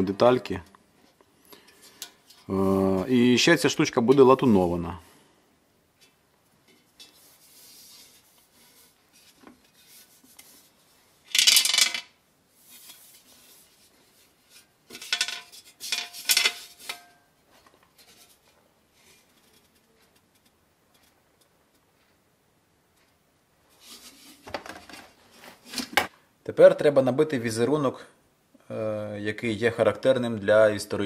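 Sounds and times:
steel scraping and clattering: 14.4s - 17.2s.

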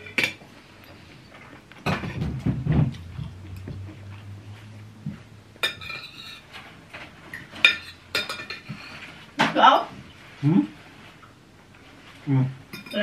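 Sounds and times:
cutlery scraping ceramic plate: 5.6s - 9.1s.

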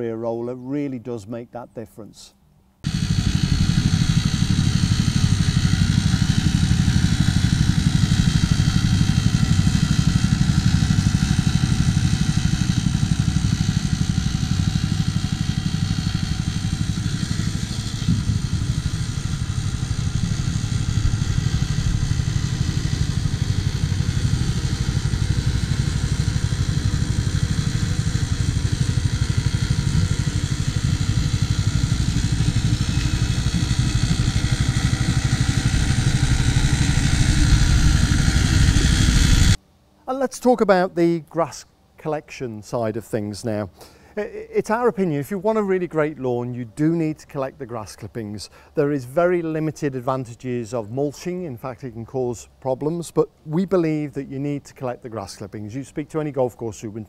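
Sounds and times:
lawn mower engine running: 2.8s - 39.6s.

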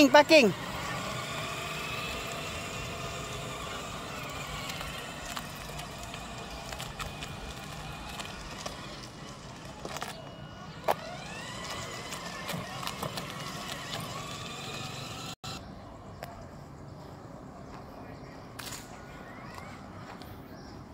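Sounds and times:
plastic wheels crunching on grit: 0.0s - 15.4s
electric motor whine: 0.0s - 15.6s.

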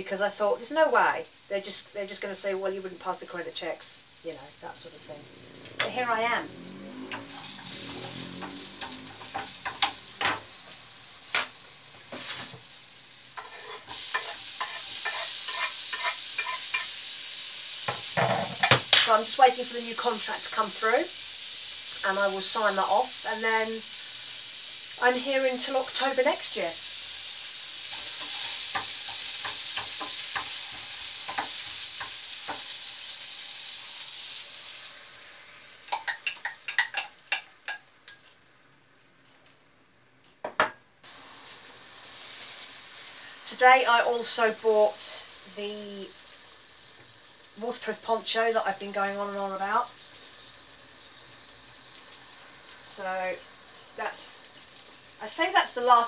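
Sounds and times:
food sizzling in pan: 0.0s - 39.7s, 40.4s - 56.0s
spatula scraping a pan: 12.1s - 12.6s, 13.4s - 17.0s, 27.9s - 32.7s
utensil scraping pan: 13.4s - 16.9s.

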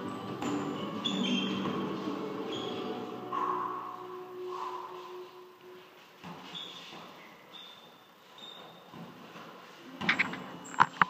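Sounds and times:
shoe soles squeaking on gym floor: 0.4s - 3.6s, 6.2s - 11.0s.

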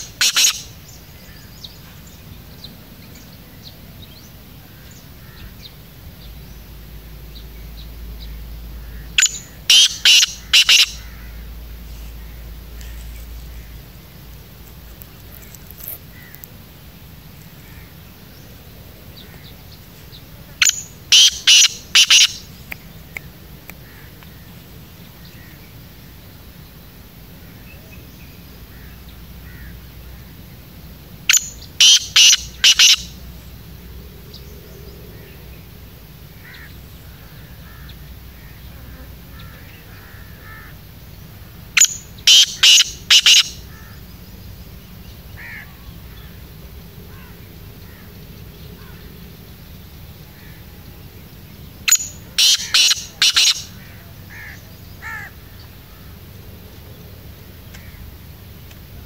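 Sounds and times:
bird calling harshly: 0.0s - 1.5s, 8.8s - 11.6s, 20.6s - 23.2s, 31.3s - 33.2s, 41.8s - 44.0s, 51.9s - 55.4s.

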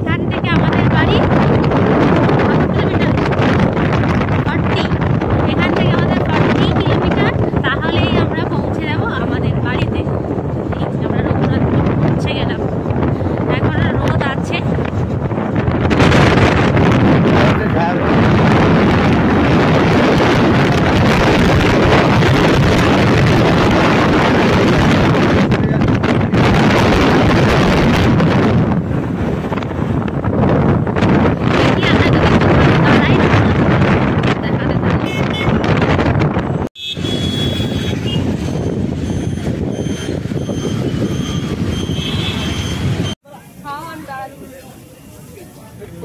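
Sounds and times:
wind rushing over microphone: 0.0s - 44.3s
high electronic beeping: 37.0s - 43.2s.

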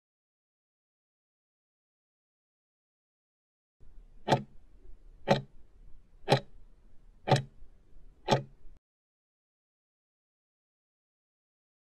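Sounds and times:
countdown timer ticking: 4.3s - 4.5s, 5.2s - 5.5s, 6.3s - 6.5s, 7.3s - 7.5s, 8.3s - 8.6s.

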